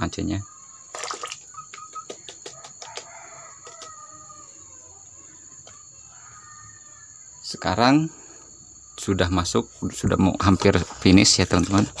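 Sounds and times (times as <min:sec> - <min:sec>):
high insect drone: 0:00.0 - 0:12.0
distant rooster crowing: 0:02.1 - 0:07.4.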